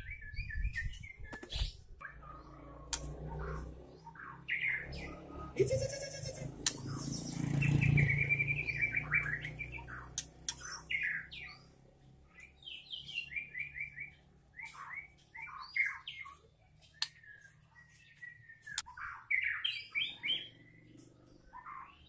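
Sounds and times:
bird singing: 0:00.0 - 0:22.0
sharp clicks: 0:02.9 - 0:03.2, 0:06.6 - 0:06.9, 0:10.1 - 0:10.7.

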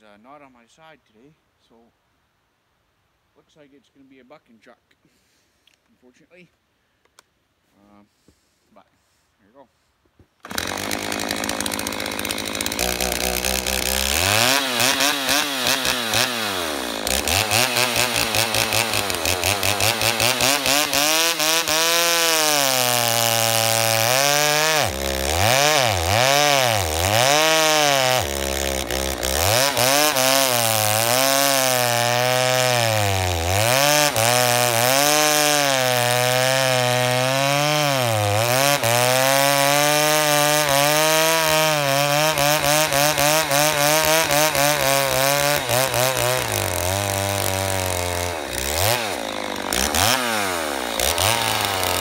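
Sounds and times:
chainsaw cutting through log: 0:10.4 - 0:52.0.

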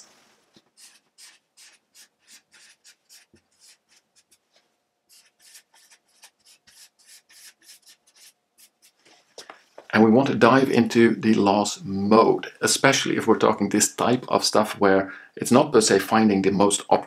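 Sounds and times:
marker scratching on paper: 0:00.6 - 0:04.4, 0:05.1 - 0:09.0.

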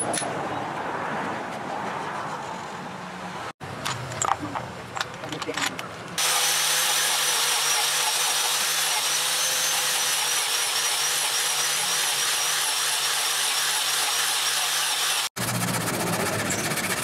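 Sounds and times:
angle grinder whirring: 0:06.2 - 0:17.0.

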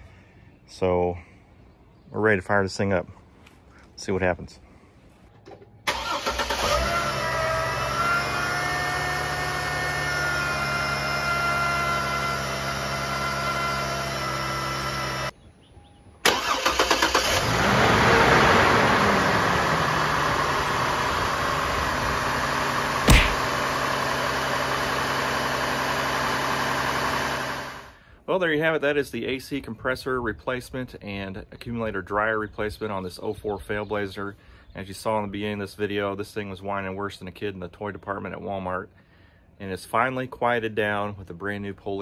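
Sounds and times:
car engine cranking and starting: 0:05.8 - 0:10.0, 0:16.2 - 0:27.9
engine idling: 0:18.7 - 0:28.0
sharp knock: 0:23.1 - 0:23.5.

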